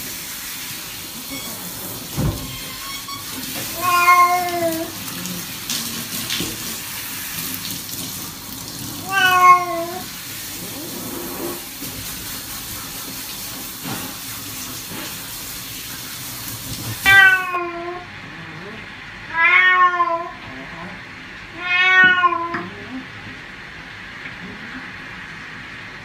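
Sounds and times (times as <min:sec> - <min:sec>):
water hissing from hand shower: 0:00.0 - 0:17.6
cat meowing: 0:03.7 - 0:05.0, 0:09.0 - 0:10.1, 0:17.0 - 0:18.1, 0:19.3 - 0:20.5, 0:21.5 - 0:22.8.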